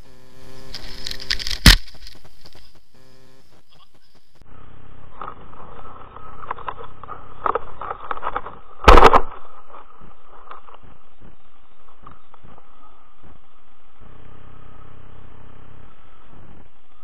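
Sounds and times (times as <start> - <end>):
camera rattle: 0.6 - 2.7, 6.4 - 10.8.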